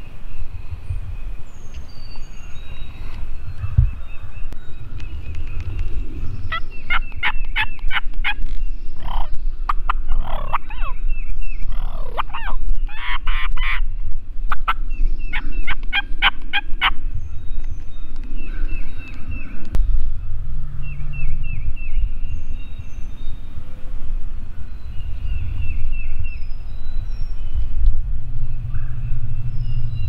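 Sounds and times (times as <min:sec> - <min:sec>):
songbird singing: 0:00.0 - 0:30.0
gliding turkey calls: 0:02.9 - 0:13.9, 0:14.5 - 0:17.1
turkey gobbling: 0:09.0 - 0:11.0, 0:11.7 - 0:13.8, 0:15.6 - 0:17.0.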